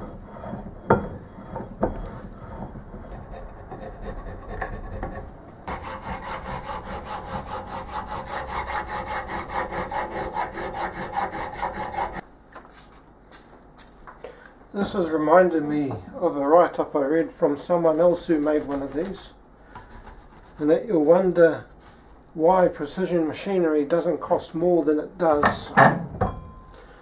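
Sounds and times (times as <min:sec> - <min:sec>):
hand file rasping on metal: 0:00.0 - 0:12.2, 0:17.9 - 0:19.2, 0:19.8 - 0:21.2.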